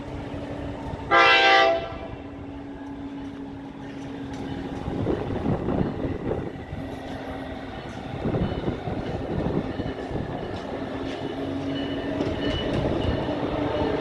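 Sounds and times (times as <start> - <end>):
train rumble: 0.0 - 14.0
train horn blast: 1.1 - 2.4.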